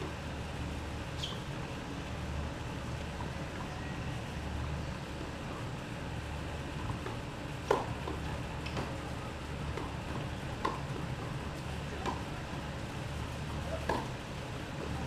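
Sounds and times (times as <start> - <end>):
tennis balls being struck: 9.7 - 10.9, 13.8 - 14.2.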